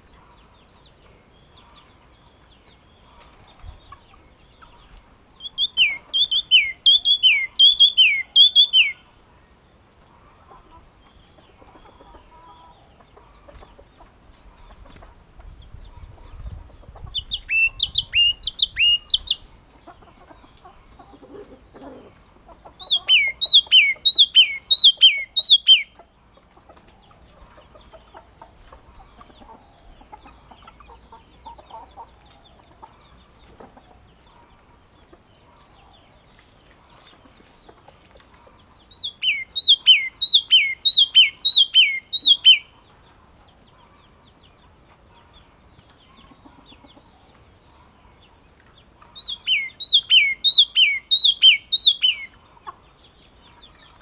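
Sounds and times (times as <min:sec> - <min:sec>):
bird singing whistled notes: 0:05.4 - 0:09.0, 0:17.2 - 0:19.5, 0:22.8 - 0:26.0, 0:38.9 - 0:42.7, 0:49.2 - 0:52.4.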